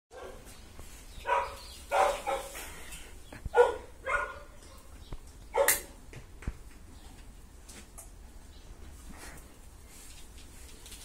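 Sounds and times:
dog barking: 0.1 - 0.5, 1.2 - 2.6, 3.5 - 4.9, 5.5 - 6.0.

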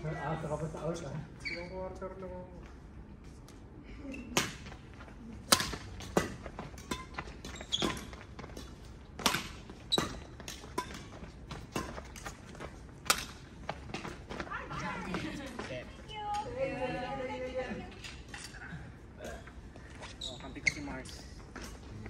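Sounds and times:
rackets smacking shuttlecock: 5.4 - 12.4, 13.0 - 14.2.

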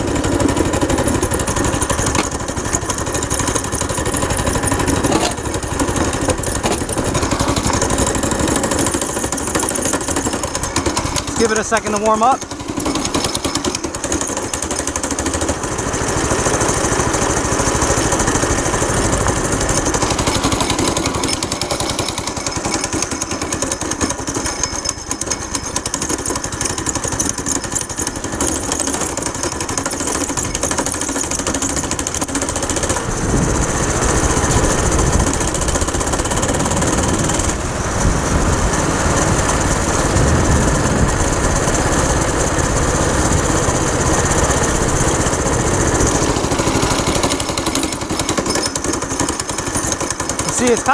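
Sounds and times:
go-kart engine running: 0.0 - 50.9
wind on microphone: 33.1 - 35.4, 36.8 - 41.6.

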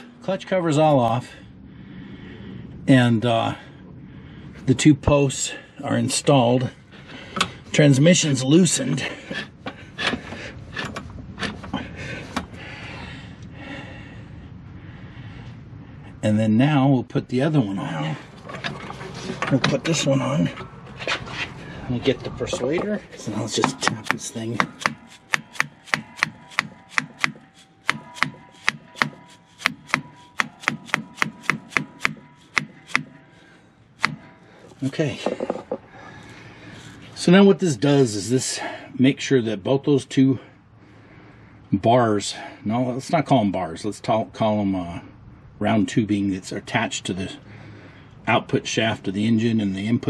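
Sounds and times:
metal tool clinking and knocking: 22.5 - 35.9
rubber mallet tapping metal bar: 23.6 - 33.2, 34.0 - 34.3.

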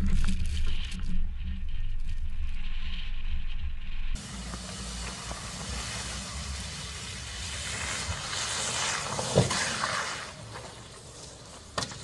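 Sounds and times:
car sliding hiss: 4.2 - 12.0.

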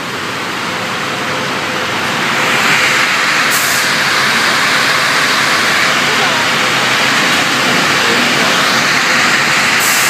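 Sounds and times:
veneer dryer machine hiss: 2.0 - 10.0.

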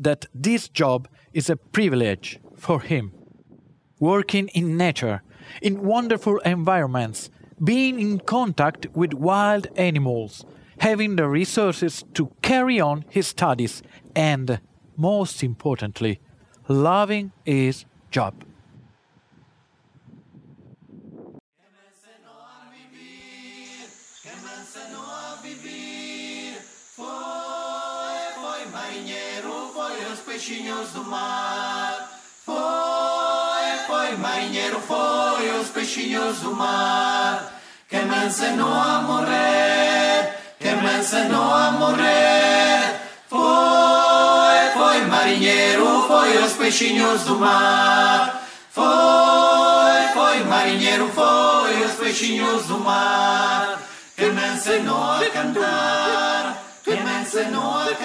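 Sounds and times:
voices singing a cappella: 21.6 - 58.0.

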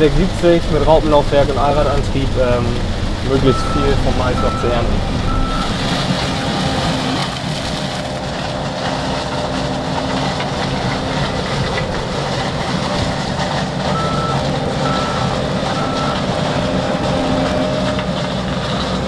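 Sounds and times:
combine harvester humming: 0.0 - 19.0
reversing alarm beeps: 3.4 - 6.8, 13.9 - 17.7.

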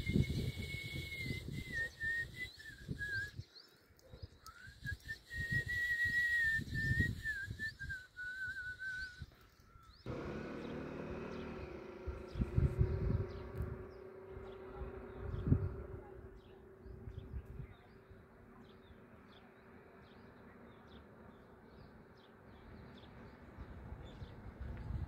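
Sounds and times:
person whistling: 0.0 - 3.4, 4.5 - 9.3
low rumbling: 10.1 - 19.8
steady buzz: 10.1 - 19.8.

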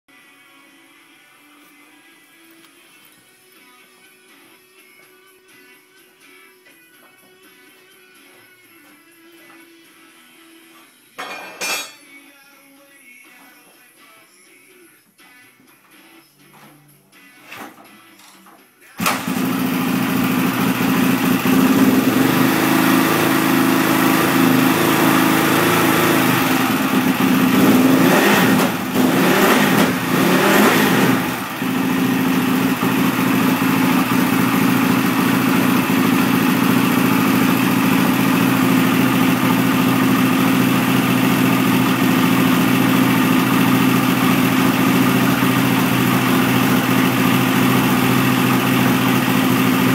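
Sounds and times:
motorcycle engine idling: 19.1 - 49.9.

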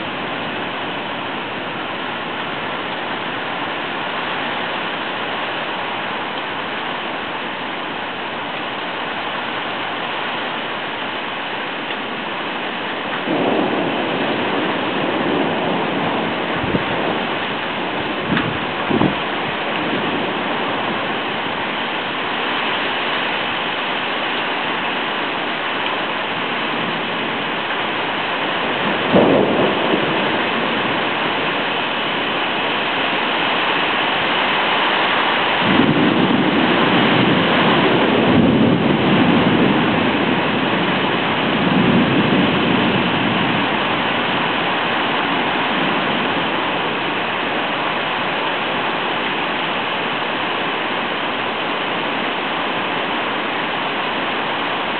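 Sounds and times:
rolling rumble of thunder: 0.0 - 4.9, 8.3 - 54.9
heavy rain: 0.0 - 54.9
sharp crack of thunder: 13.0 - 21.6, 28.5 - 33.2, 34.1 - 47.8.

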